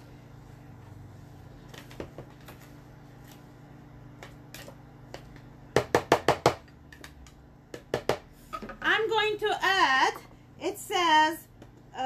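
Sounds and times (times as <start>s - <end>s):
spatula tapping plastic bowl: 4.2s - 8.3s.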